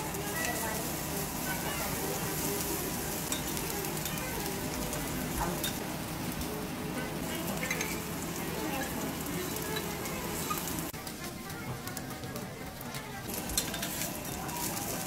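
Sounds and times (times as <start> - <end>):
food sizzling on griddle: 0.0 - 15.0
metal spatula clicking on griddle: 9.7 - 14.6.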